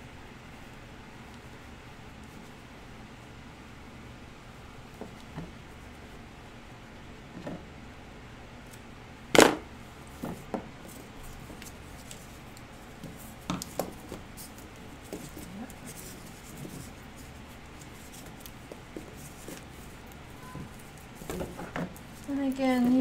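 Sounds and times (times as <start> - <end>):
fabric rustling: 9.4 - 23.0.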